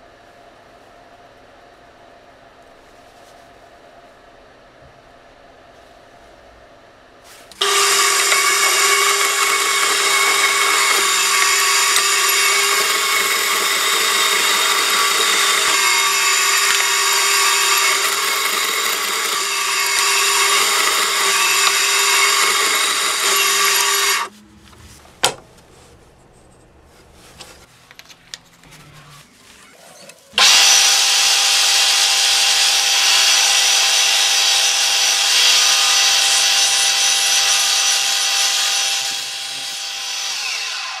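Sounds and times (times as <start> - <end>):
bandsaw cutting wood: 7.6 - 24.3, 30.4 - 41.0
drill bit boring into wood: 7.6 - 24.3, 30.4 - 41.0
mill spindle starting up: 7.6 - 24.3, 30.4 - 41.0.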